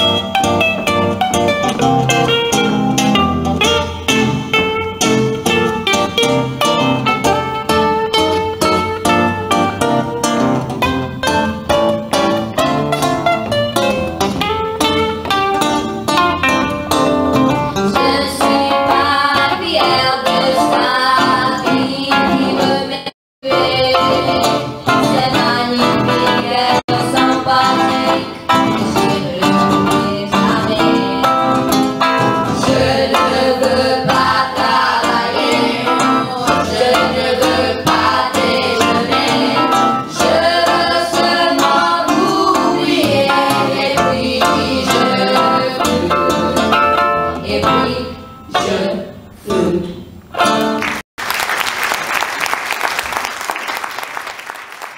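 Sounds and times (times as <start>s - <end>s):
guitar: 0.0s - 51.0s
women singing together: 17.9s - 31.8s, 32.5s - 50.0s
audience applause: 50.8s - 54.9s.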